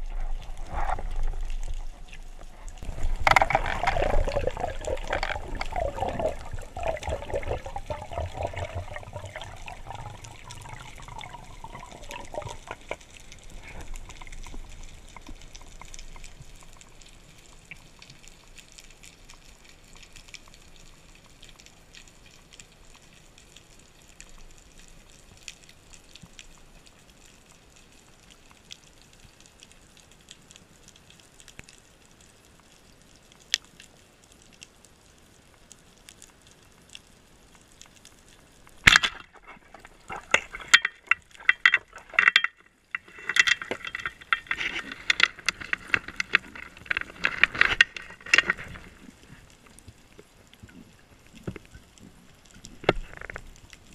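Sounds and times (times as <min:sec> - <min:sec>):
bubbling and water rushing: 0:00.0 - 0:18.0, 0:38.6 - 0:53.9
underwater crackle of small clicks: 0:00.0 - 0:53.9.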